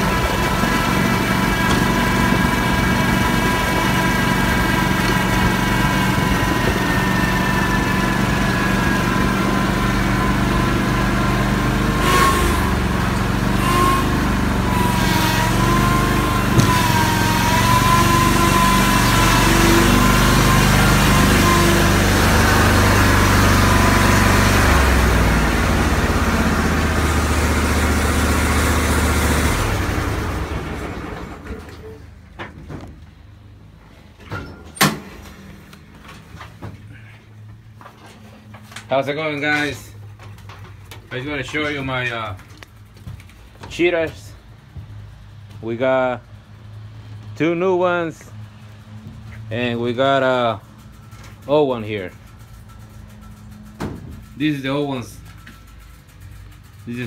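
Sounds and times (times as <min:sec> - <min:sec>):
mower engine running: 0:00.0 - 0:31.7, 0:49.7 - 0:57.0.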